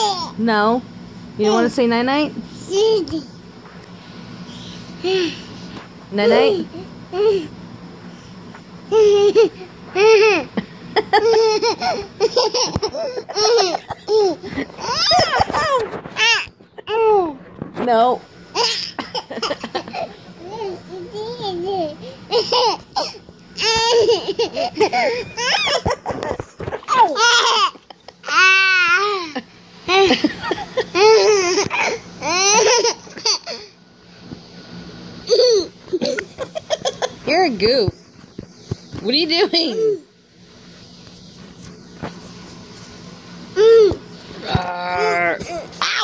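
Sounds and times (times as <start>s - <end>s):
baby squealing and laughing: 11.2s - 17.1s, 22.3s - 26.1s
toddler giggling and squealing: 18.6s - 33.6s.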